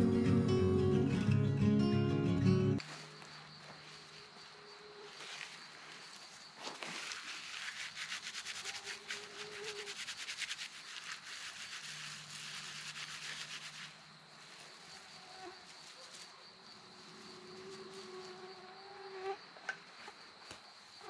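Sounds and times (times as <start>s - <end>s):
night insects chirring: 2.8s - 21.0s
hands rubbing dry tinder: 6.7s - 14.7s.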